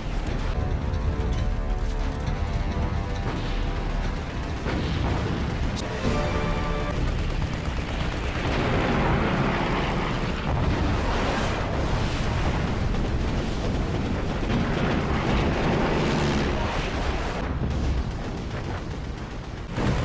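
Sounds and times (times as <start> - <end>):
anti-aircraft guns firing: 1.6 - 20.0
explosions: 8.4 - 20.0.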